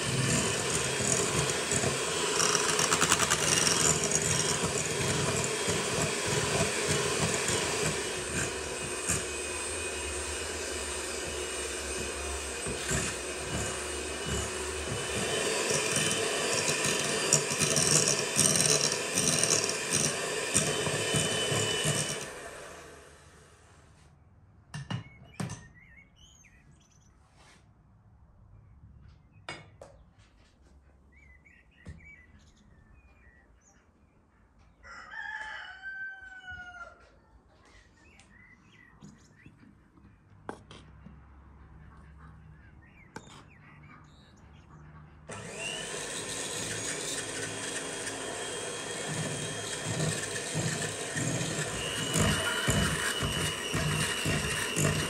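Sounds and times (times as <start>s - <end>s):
electric hand mixer whining: 0.0s - 23.5s, 45.3s - 55.0s
rooster crowing: 34.8s - 37.1s.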